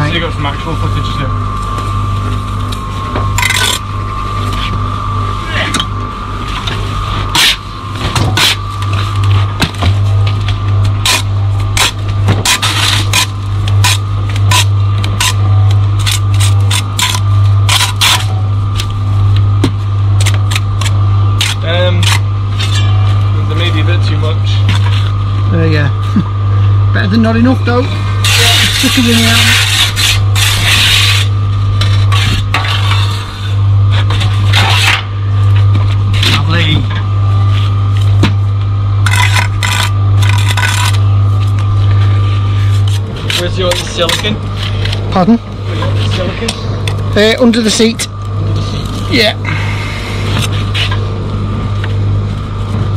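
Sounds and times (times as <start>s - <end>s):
steady low hum: 0.0s - 52.9s
trowel scraping on brick: 28.3s - 31.3s.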